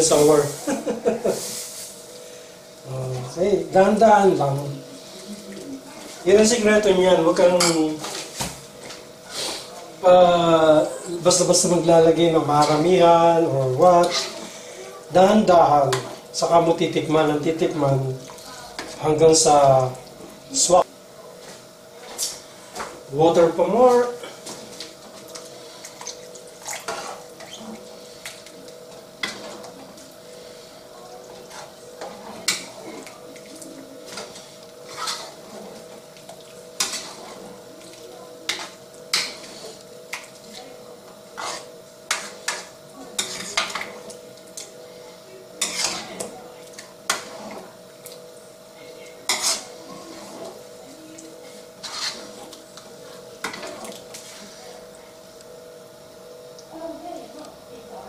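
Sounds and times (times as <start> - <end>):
steady hum: 0.0 - 58.0
metal ladle scraping a pan: 14.0 - 14.4, 34.1 - 35.7, 36.8 - 37.5, 41.3 - 43.8, 45.6 - 46.2, 49.3 - 50.6, 51.7 - 52.4.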